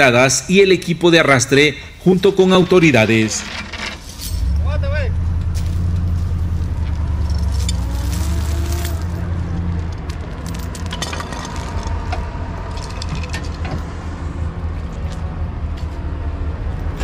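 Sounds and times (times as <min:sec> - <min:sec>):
vehicle engine running: 0:04.3 - 0:17.0
sharp metallic clinks: 0:07.1 - 0:09.2.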